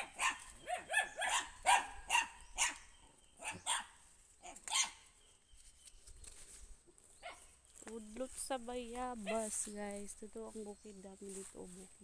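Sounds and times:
dog barking: 0.0s - 2.8s, 3.4s - 5.0s, 7.2s - 7.5s.

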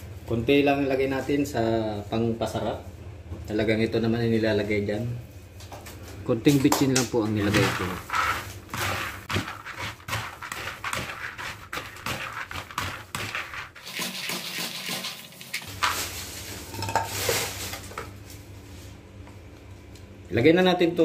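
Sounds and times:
metal turner scraping: 7.3s - 15.9s.

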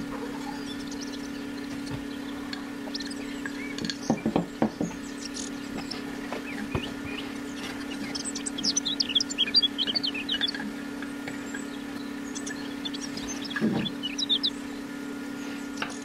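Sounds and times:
steady low hum: 0.0s - 16.0s
sharp knocks on wooden block: 4.1s - 5.0s.

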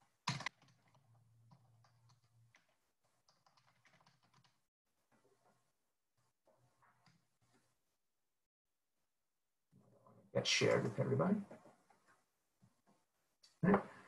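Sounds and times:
keyboard typing: 0.0s - 4.6s.

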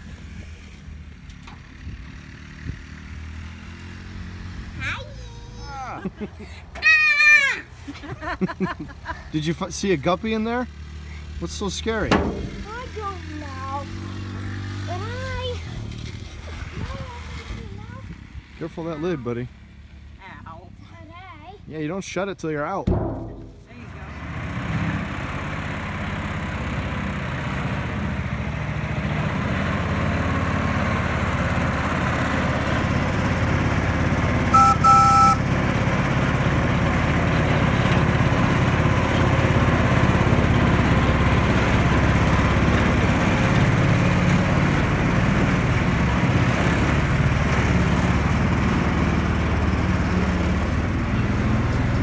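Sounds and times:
small engine running: 9.0s - 19.9s, 24.0s - 52.0s
two-tone horn beep: 34.5s - 35.5s.

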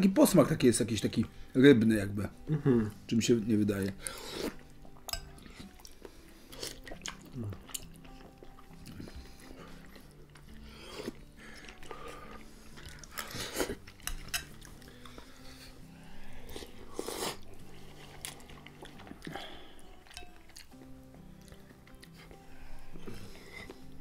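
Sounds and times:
quiet background music: 0.0s - 24.0s
people slurping noodles: 4.0s - 4.7s, 5.4s - 14.0s, 14.8s - 19.8s.

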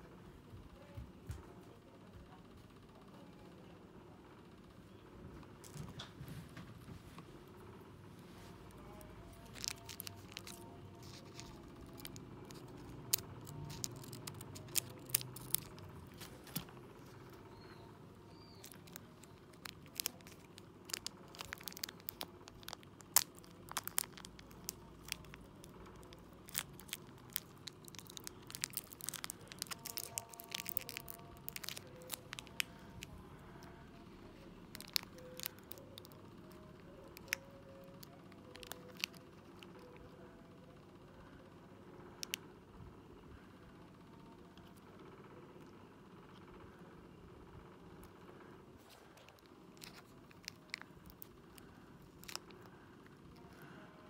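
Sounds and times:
plastic packet crinkling: 8.7s - 17.7s, 18.3s - 33.8s, 34.7s - 40.0s, 48.8s - 53.5s.

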